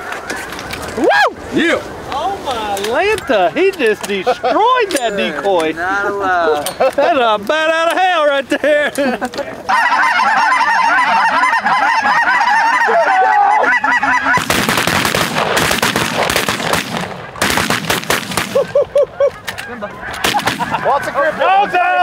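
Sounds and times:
geese honking: 1.6s - 6.6s, 9.6s - 22.0s
shotgun shots: 14.4s - 18.7s, 20.2s - 20.8s.

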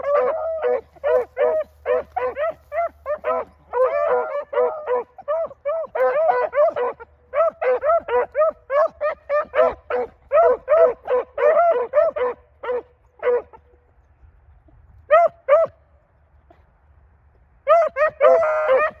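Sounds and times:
hounds baying: 0.0s - 13.8s, 17.7s - 19.0s.

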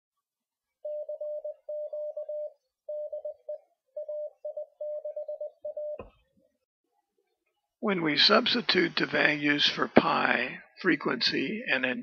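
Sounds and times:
morse code tone: 0.8s - 6.1s.

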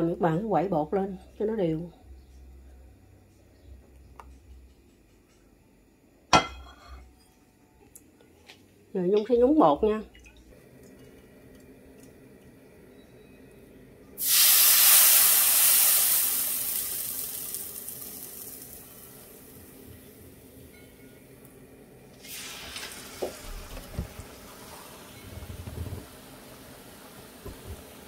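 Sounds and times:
oil sizzling: 14.2s - 20.7s, 22.1s - 28.0s.

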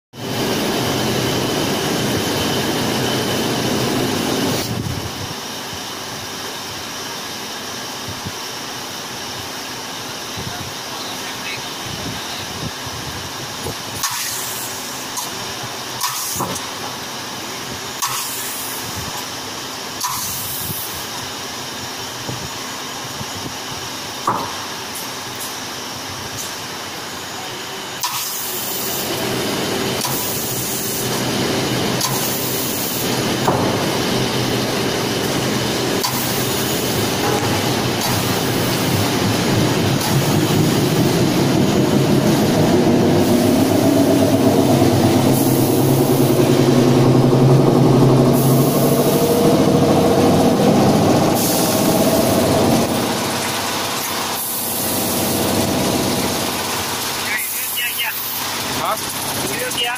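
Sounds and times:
warping machine humming: 26.9s - 57.4s.

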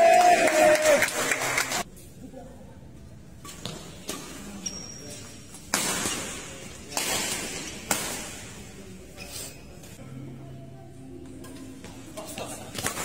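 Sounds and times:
rackets hitting shuttlecock: 5.5s - 8.7s, 11.5s - 13.0s.

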